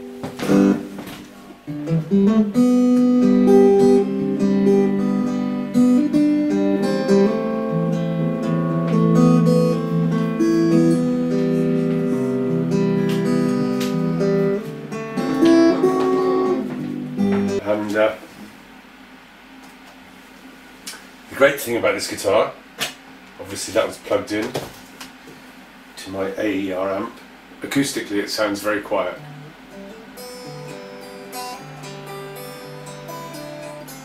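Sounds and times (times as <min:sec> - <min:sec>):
acoustic guitar picking and strumming: 0:00.0 - 0:18.2, 0:28.7 - 0:34.0.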